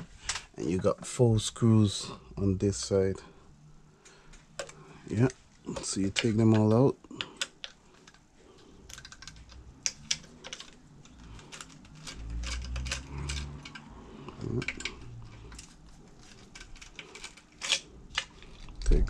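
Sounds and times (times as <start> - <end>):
low rumble of handling: 0.0 - 19.0
screwdriver and screws clicking: 8.9 - 18.5.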